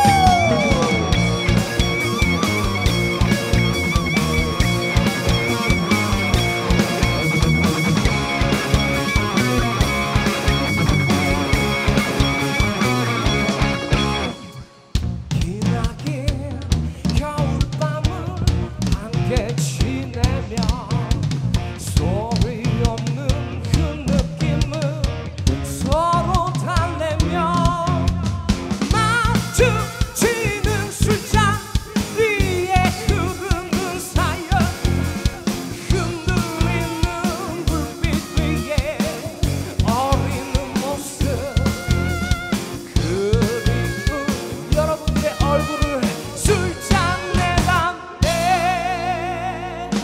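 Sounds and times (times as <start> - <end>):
person singing: 0.0 - 14.5, 21.8 - 25.2, 25.8 - 50.0
live rock band playing: 0.0 - 50.0.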